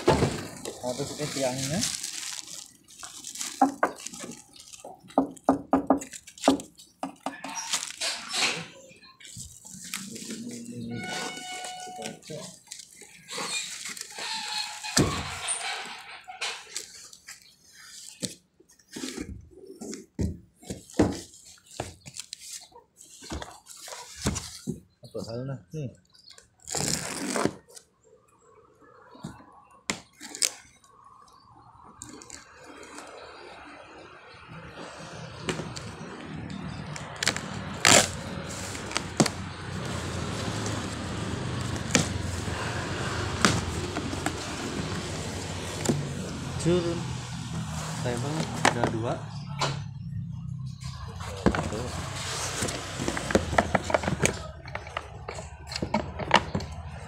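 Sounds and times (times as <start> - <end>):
box cutter slitting packing tape: 26.6 - 27.8, 37.0 - 39.4.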